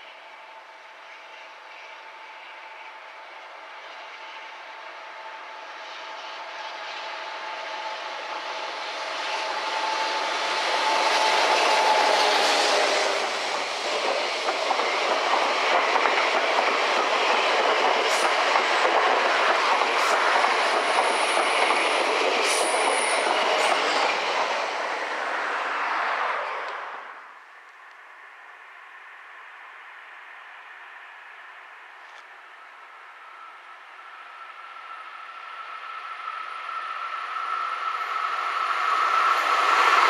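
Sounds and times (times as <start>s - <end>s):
locomotive whine: 0.0s - 40.0s
train coaches rolling past: 0.0s - 40.0s
high wheel squeal: 33.3s - 40.0s.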